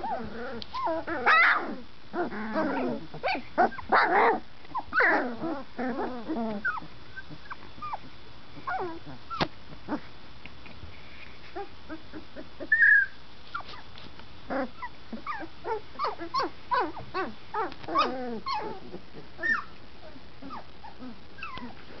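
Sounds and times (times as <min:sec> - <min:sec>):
puppies whimpering and yipping: 0:00.0 - 0:10.0, 0:11.4 - 0:13.9, 0:14.5 - 0:22.0
puppy squealing: 0:00.8 - 0:08.0, 0:11.6 - 0:13.7, 0:14.5 - 0:19.8.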